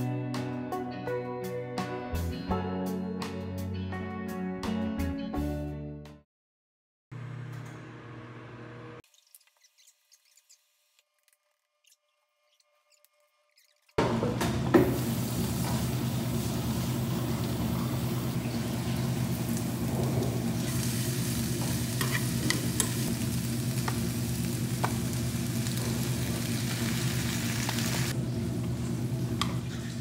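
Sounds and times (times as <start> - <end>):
onions sizzling in a frying pan: 14.8 - 28.8
metal utensil clicking on pan: 22.0 - 23.0.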